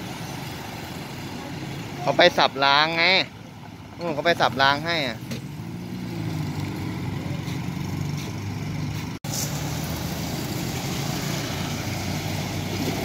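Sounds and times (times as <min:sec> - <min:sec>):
diesel locomotive engine idling: 0:07.1 - 0:09.2.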